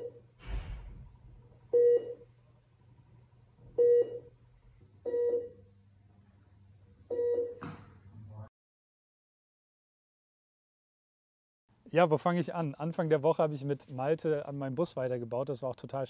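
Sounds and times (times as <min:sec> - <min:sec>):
patient monitor beeping: 0:00.0 - 0:00.2, 0:01.7 - 0:02.3, 0:03.8 - 0:04.3, 0:05.0 - 0:05.7, 0:07.1 - 0:07.6.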